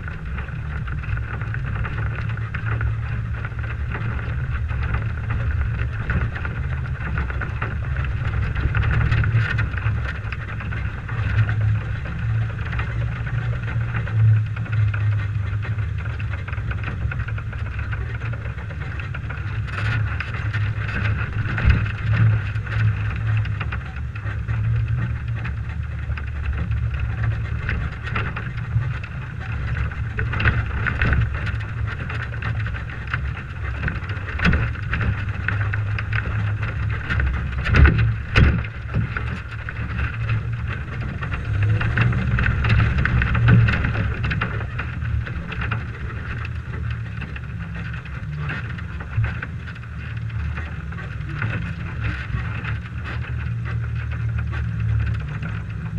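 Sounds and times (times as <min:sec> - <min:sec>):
low engine rumble: 0:00.0 - 0:55.9
wind rumble: 0:00.0 - 0:55.9.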